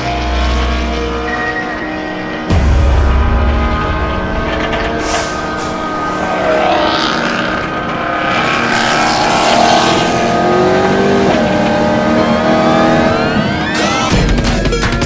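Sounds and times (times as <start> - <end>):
car engine revving loudly: 3.4 - 14.2.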